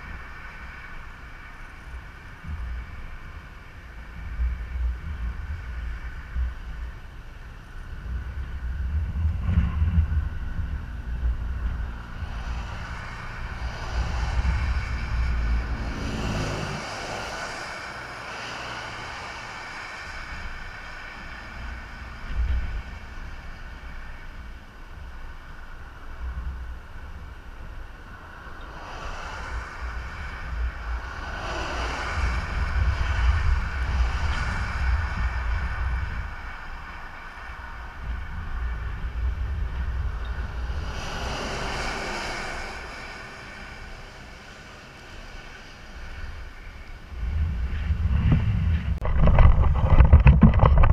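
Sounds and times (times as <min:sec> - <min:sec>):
wind buffeting microphone: 0:00.0 - 0:50.9
tyre hiss on wet road: 0:12.2 - 0:27.0, 0:28.0 - 0:38.6, 0:39.2 - 0:47.1.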